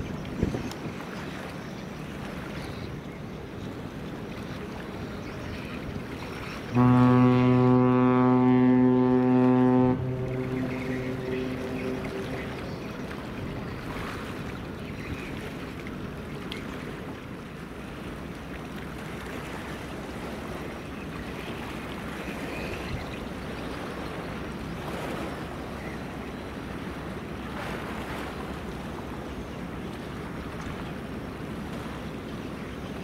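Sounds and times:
wind on microphone: 0.0 - 1.2
water washing along ship hull: 0.0 - 33.0
low steady rumble: 6.8 - 16.4.

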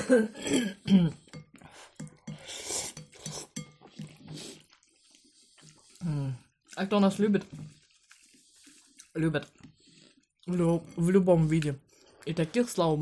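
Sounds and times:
noodles being slurped: 1.2 - 13.0.

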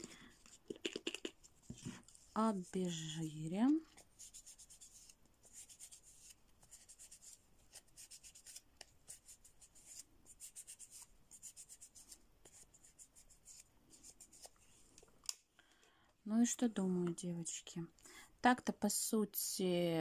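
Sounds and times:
wipe scratching on fingernails: 0.4 - 14.6.

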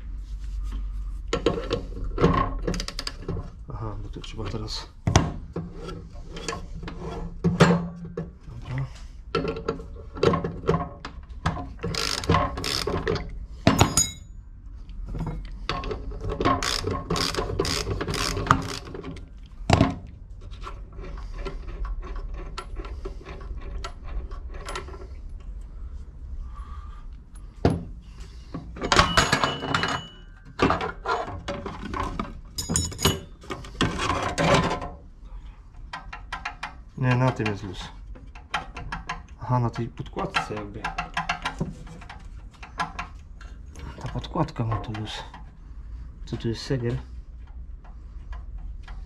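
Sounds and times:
metal knocks and clatter: 5.0 - 8.5, 9.3 - 14.3, 27.5 - 35.0, 35.9 - 43.2
ratchet wrench clicking: 16.6 - 18.9.

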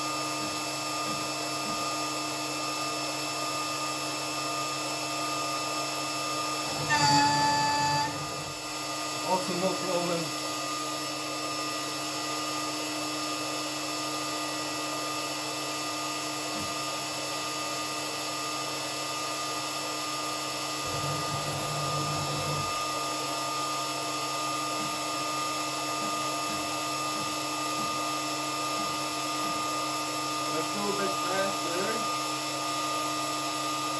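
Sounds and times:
router spindle whine: 6.2 - 10.4, 16.4 - 32.5.

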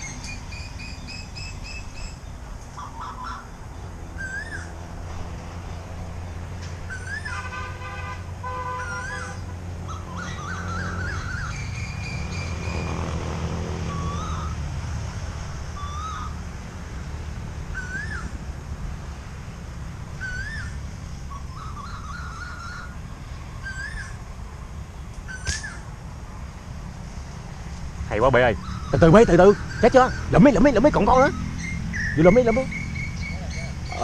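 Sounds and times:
bird warbling: 0.0 - 3.6, 4.2 - 4.7, 8.7 - 12.8, 15.8 - 16.4, 17.7 - 18.4, 20.2 - 23.0, 28.4 - 34.0
bird whistle call: 4.2 - 4.7, 6.9 - 7.6, 8.7 - 12.8, 13.9 - 14.6, 15.8 - 16.3, 17.8 - 18.3, 20.2 - 23.0, 23.6 - 24.2, 25.3 - 25.8
slingshot snap: 25.4 - 25.7.

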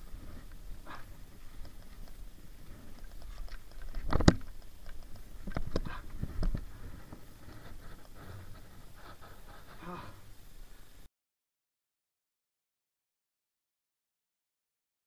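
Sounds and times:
handling knocks and clicks: 1.5 - 8.2.

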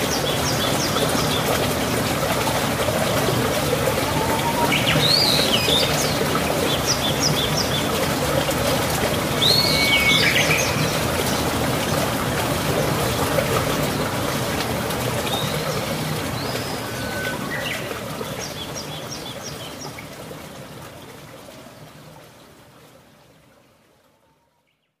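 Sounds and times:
running water: 0.0 - 24.6
birds chirping: 3.8 - 8.0.

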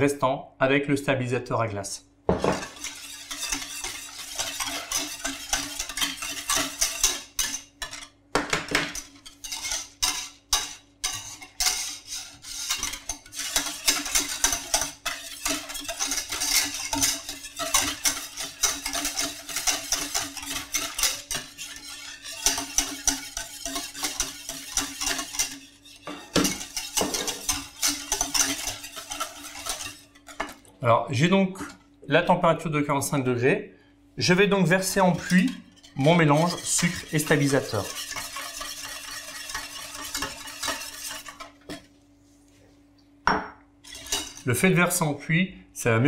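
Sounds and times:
wire whisk clattering in saucepan: 2.4 - 30.6, 34.7 - 41.9, 43.8 - 44.9.

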